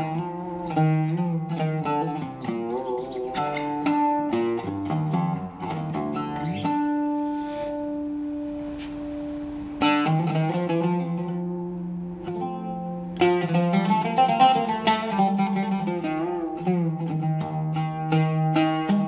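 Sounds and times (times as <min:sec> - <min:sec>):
oud plucked notes: 0:00.0 - 0:19.0.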